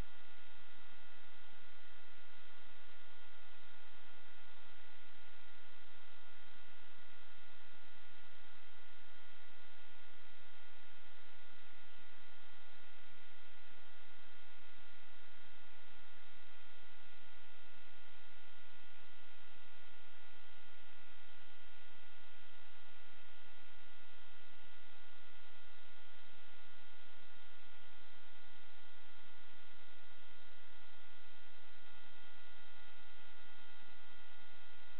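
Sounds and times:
electronic hum and hiss: 0.0 - 34.9.

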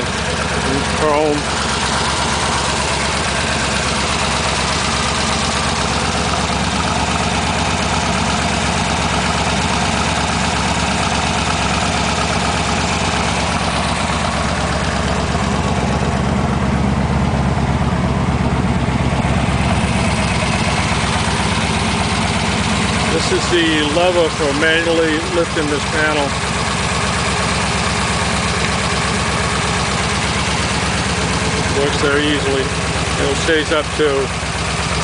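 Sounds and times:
car engine idling: 0.0 - 35.0.

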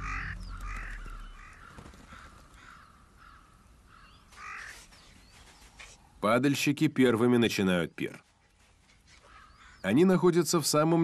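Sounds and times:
crows cawing: 0.0 - 4.8, 9.2 - 9.9.

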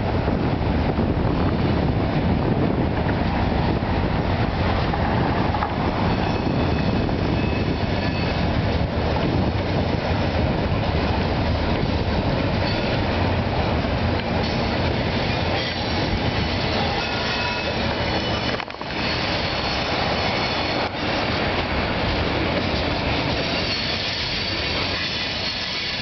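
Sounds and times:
steel wheels rumbling on rails: 0.0 - 26.0
high wheel squeal: 6.0 - 8.6, 12.6 - 13.0, 15.2 - 21.3, 23.1 - 26.0.

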